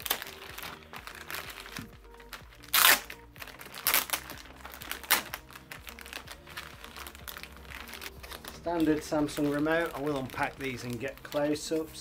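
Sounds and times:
packaging tearing and crinkling: 0.0s - 11.9s.

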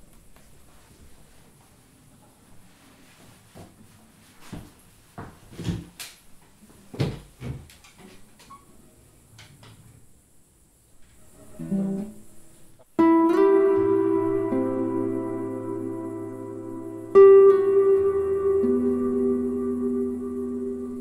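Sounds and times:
guitar chord ringing: 13.0s - 21.0s.

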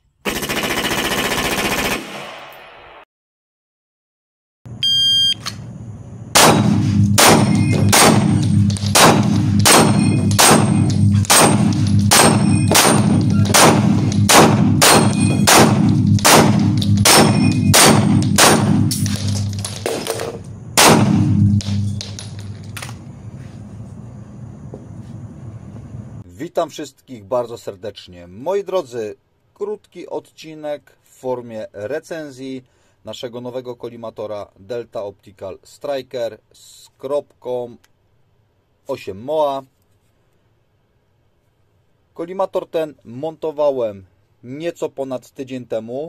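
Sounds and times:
rapid pistol shots echoing: 0.2s - 2.5s, 6.4s - 21.9s
electronic timer beep: 4.8s - 5.4s
steel targets clanging: 7.3s - 20.5s, 21.4s - 22.8s.

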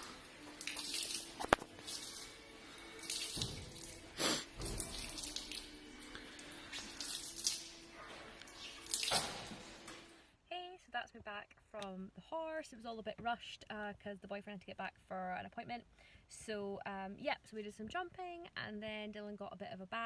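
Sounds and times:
hose water spraying and splashing: 0.0s - 9.9s.

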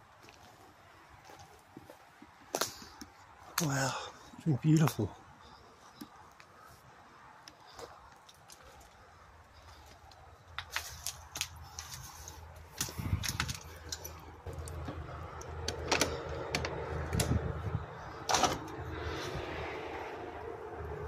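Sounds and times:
footsteps on debris: 7.5s - 9.0s, 9.6s - 15.0s
sharp clicks and knocks: 12.7s - 17.5s.

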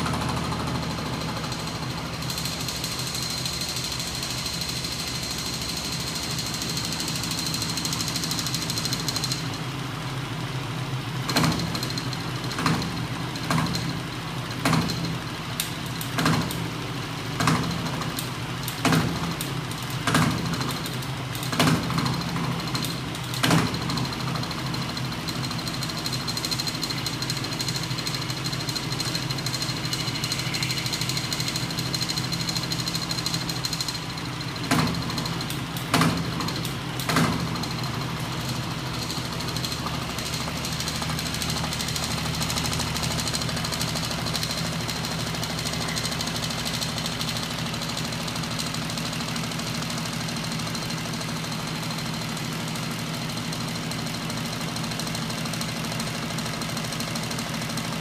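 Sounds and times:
electric motor hum and whine: 0.0s - 56.4s
sharp mechanical knock: 11.3s - 13.9s, 14.6s - 16.7s, 17.4s - 24.0s, 34.6s - 37.9s.

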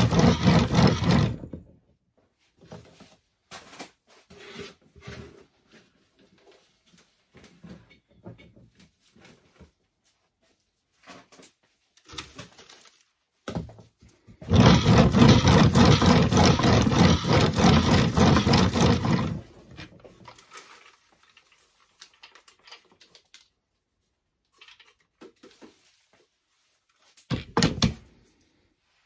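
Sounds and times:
compost scraping over wire mesh: 14.5s - 19.6s.

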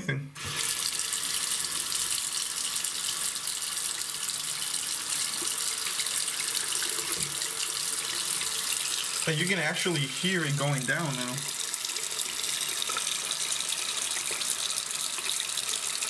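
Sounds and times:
water running down drain: 0.4s - 16.0s.

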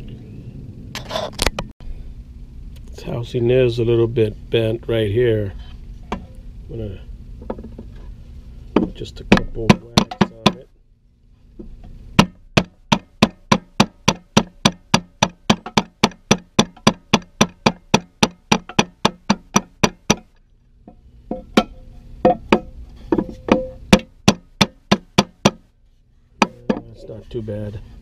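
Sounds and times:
hammer tapping steel: 8.8s - 10.6s, 12.2s - 25.7s, 26.4s - 26.9s.

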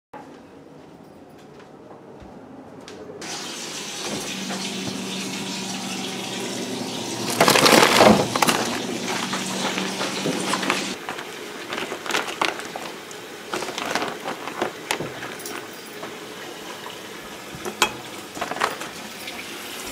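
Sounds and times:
freezer rushing hiss and hum: 3.2s - 19.9s
crinkling plastic food packages: 7.2s - 16.9s, 18.3s - 19.1s.

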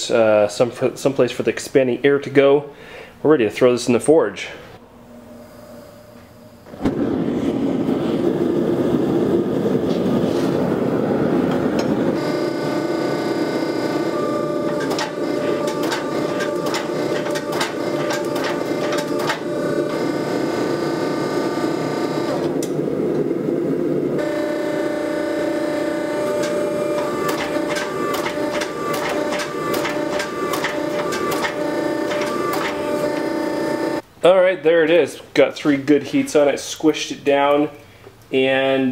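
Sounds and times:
gas forge burner roaring: 4.5s - 34.1s
hydraulic pump whine: 4.8s - 34.0s
hydraulic press clicks: 14.0s - 20.0s, 26.0s - 33.4s.

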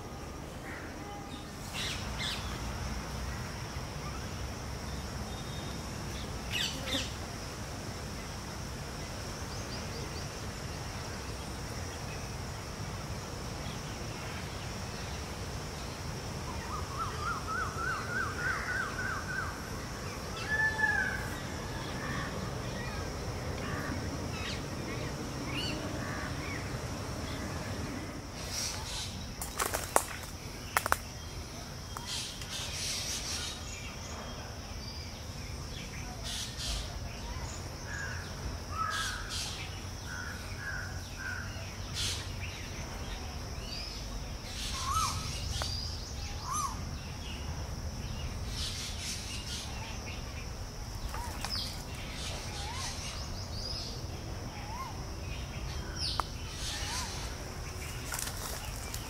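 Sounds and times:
birds calling and chirping: 35.8s - 47.4s, 48.1s - 59.0s.

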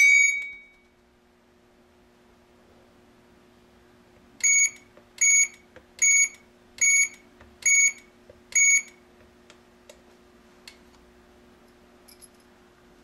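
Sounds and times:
short high-pitched buzzer beeps: 4.4s - 8.0s, 8.6s - 8.9s.

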